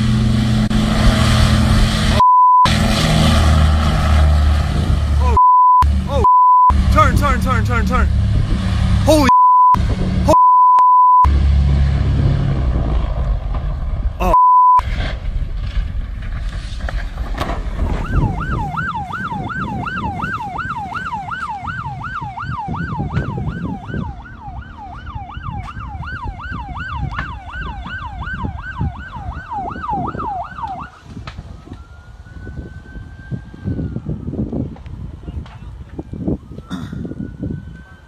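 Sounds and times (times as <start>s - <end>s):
emergency siren yelping and wailing: 3.5s - 8.2s, 17.9s - 38.0s
short steady beep: 5.4s - 6.8s, 9.3s - 11.3s, 14.3s - 14.8s.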